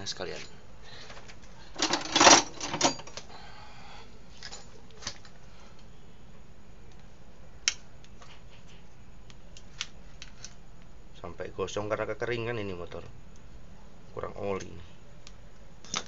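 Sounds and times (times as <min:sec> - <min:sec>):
metal clinks and knocks: 0:01.8 - 0:03.2.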